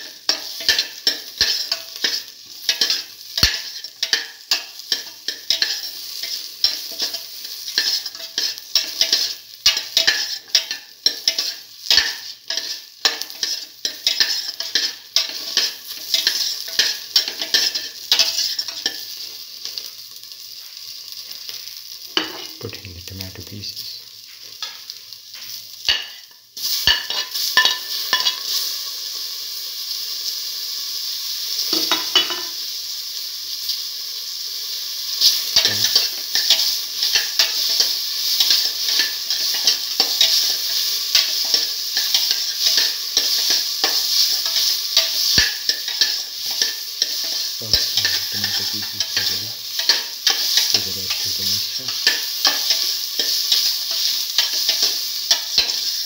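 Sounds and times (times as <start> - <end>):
vegetables sizzling in oil: 0.0 - 56.0
spatula stirring and scraping: 0.2 - 19.1, 35.2 - 56.0.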